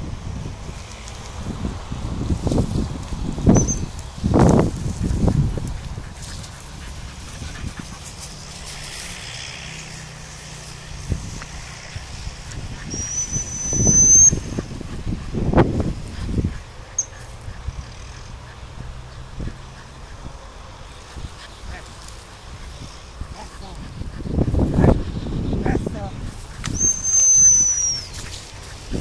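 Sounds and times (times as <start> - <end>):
wind on microphone: 0.0 - 29.0
rustling through grass: 0.5 - 13.3, 20.8 - 29.0
dog training whistle blast: 3.6 - 3.9, 12.9 - 14.5, 26.7 - 28.1.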